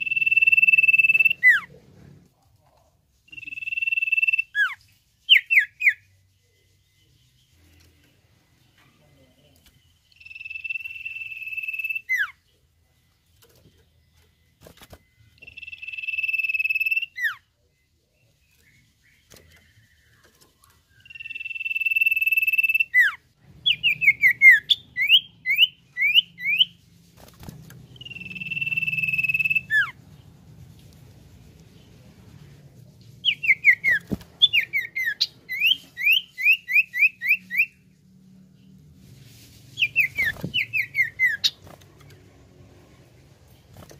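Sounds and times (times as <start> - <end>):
bird whistling long notes: 28.0 - 29.9.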